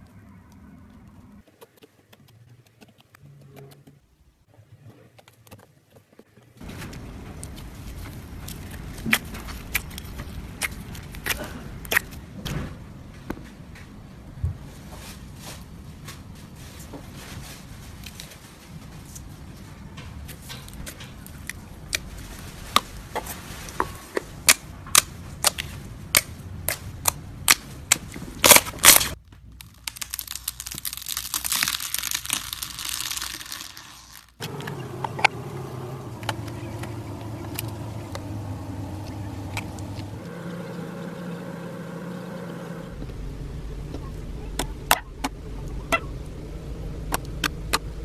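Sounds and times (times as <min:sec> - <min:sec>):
steady low hum: 0:34.4 - 0:48.0.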